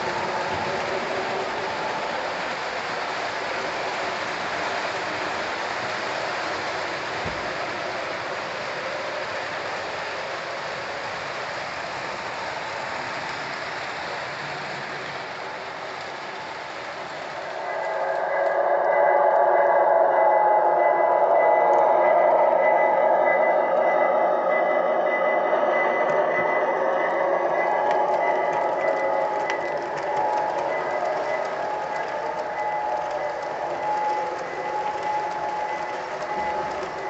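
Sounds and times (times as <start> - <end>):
model train wheels clattering: 0.0 - 18.6, 27.6 - 37.0.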